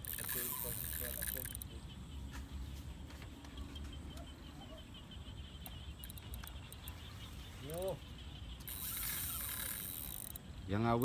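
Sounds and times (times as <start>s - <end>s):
faint ticks: 0.0s - 1.8s, 5.6s - 7.1s, 8.6s - 10.5s
small high chirps: 0.0s - 2.3s, 3.4s - 10.7s.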